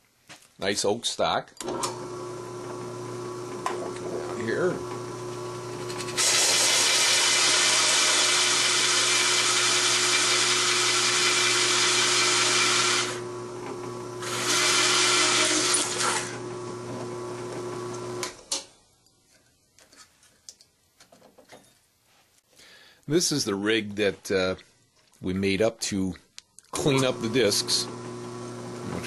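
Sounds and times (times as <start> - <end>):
drill motor humming: 1.9 - 18.4, 26.8 - 29.0
hole saw cutting wood: 5.8 - 16.4.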